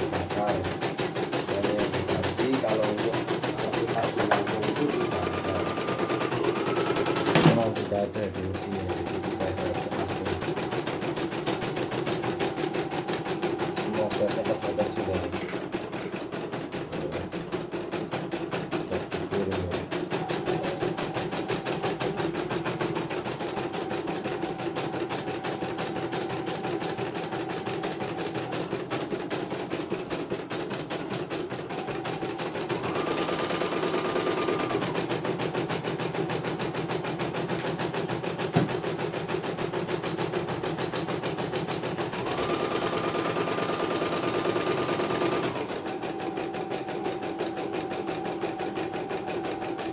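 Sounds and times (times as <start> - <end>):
embroidery machine needle clatter: 0.0 - 49.9.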